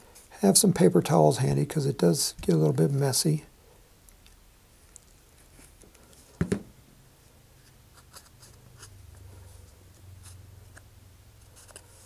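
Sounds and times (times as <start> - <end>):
plastic bottle knocking on surface: 6.4 - 6.7.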